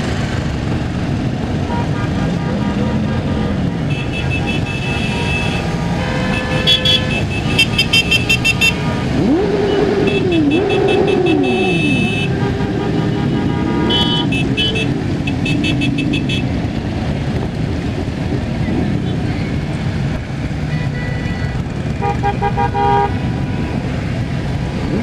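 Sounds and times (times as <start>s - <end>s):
traffic noise: 0.0s - 25.0s
electronic horn beeps: 3.9s - 9.2s, 11.4s - 16.4s
siren-like wail: 8.7s - 13.9s.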